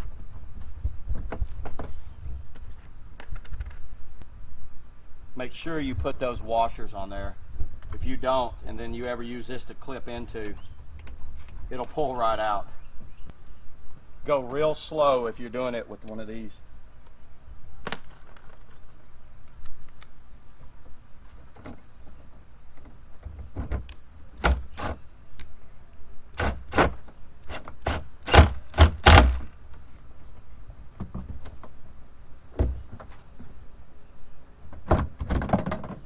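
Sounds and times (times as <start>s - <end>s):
knocks and clunks of parts: 21.4s - 24.7s, 30.9s - 31.8s, 32.5s - 33.5s, 34.7s - 36.0s.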